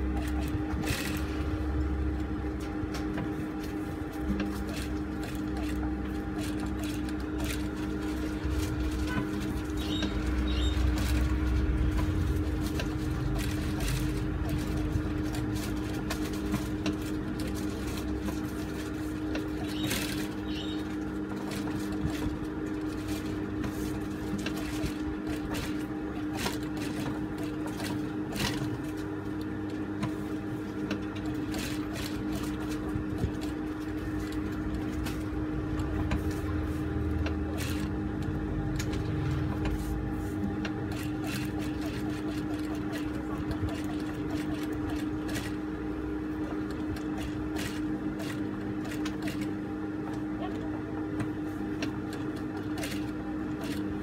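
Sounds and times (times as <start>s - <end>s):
sewing machine motor hum: 0.0s - 54.0s.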